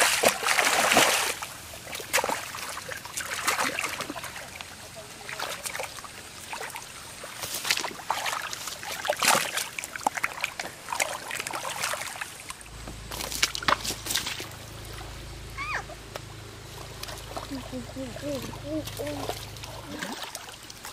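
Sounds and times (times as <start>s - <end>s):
hands splashing in muddy water: 0.0s - 14.6s.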